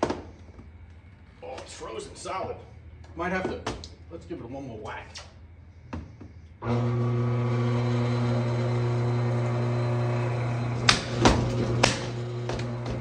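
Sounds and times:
power hammer motor humming: 6.6s - 13.0s.

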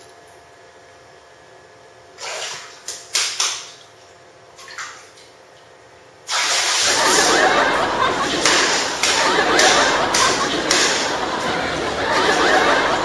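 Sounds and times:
bathwater splashing in a tub: 6.3s - 11.4s.

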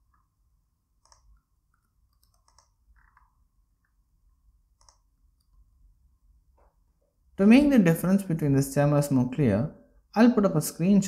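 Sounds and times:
keyboard and mouse clicks: 1.0s - 4.0s, 4.7s - 5.6s.

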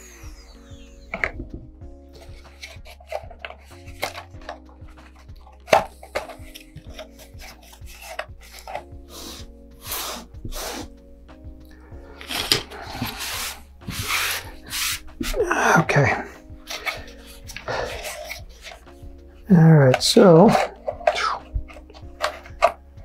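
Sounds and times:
soft background music: 0.0s - 23.0s
hand rubbing strokes: 6.6s - 11.1s, 12.2s - 19.2s.

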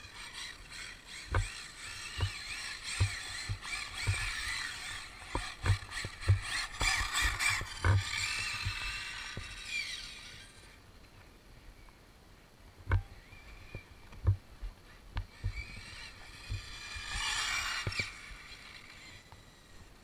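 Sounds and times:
rc car motor whining: 0.0s - 10.8s, 12.9s - 20.0s
short dull thumps: 1.3s - 9.6s, 12.8s - 15.8s.

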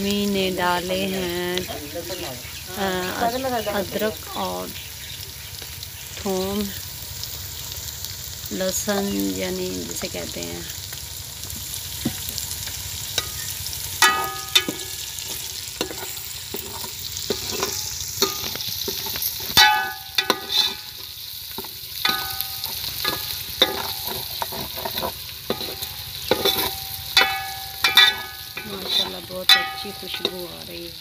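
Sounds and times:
vegetables sizzling in hot ghee: 0.0s - 31.0s
metal ladle clinking against pot: 14.0s - 15.0s, 15.8s - 20.9s, 22.0s - 30.6s.

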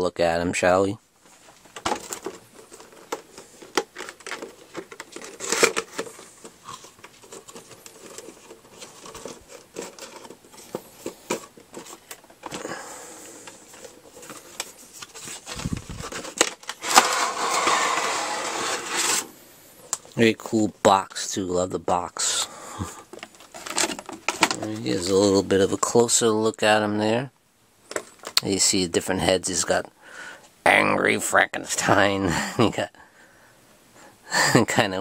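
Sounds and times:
packaging clicks and crinkles: 1.5s - 18.1s, 23.1s - 25.2s
box sliding out of sleeve: 12.6s - 19.4s.

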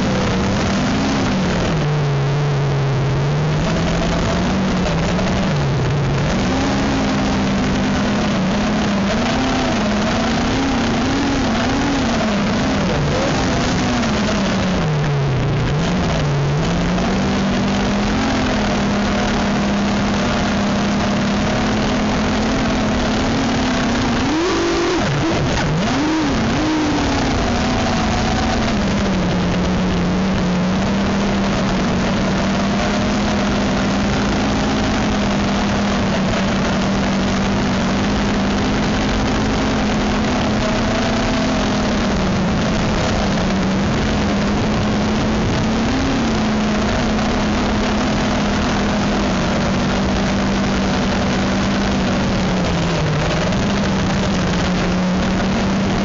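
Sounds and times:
drone motors droning: 0.0s - 56.0s.

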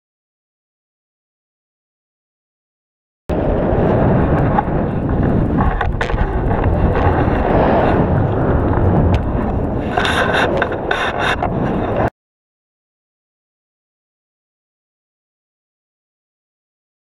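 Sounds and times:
sharp crackles: 3.3s - 12.1s
wind buffeting microphone: 3.3s - 12.1s.

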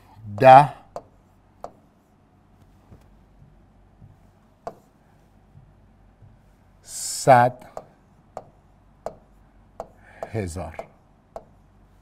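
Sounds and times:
room hum: 0.0s - 12.0s
pen tapping on display board: 0.3s - 1.8s, 2.9s - 4.9s, 7.7s - 11.6s.

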